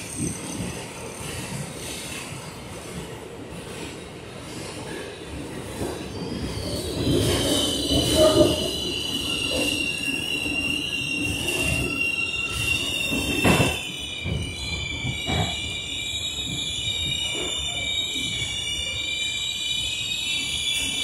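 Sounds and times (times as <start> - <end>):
subway car running on track: 0.0 - 21.0
high-pitched wheel squeal: 6.2 - 21.0.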